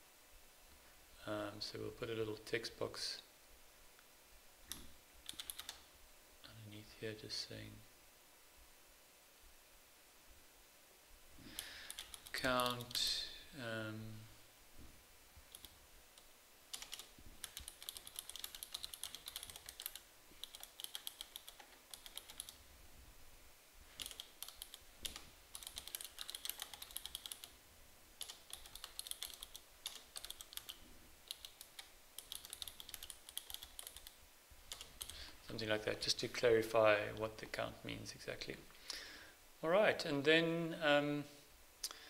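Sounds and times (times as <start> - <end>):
computer keyboard typing: 4.7 - 5.8, 11.6 - 13.1, 15.5 - 22.6, 24.0 - 27.6, 28.2 - 35.2.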